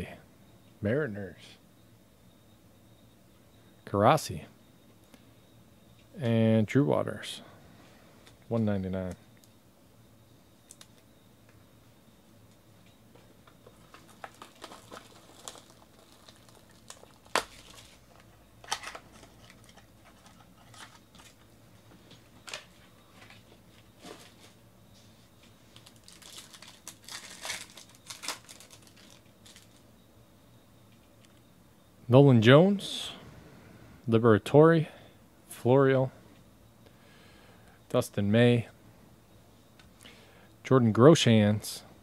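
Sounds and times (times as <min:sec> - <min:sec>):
foil crinkling: 0:13.6 - 0:21.4, 0:25.7 - 0:29.8.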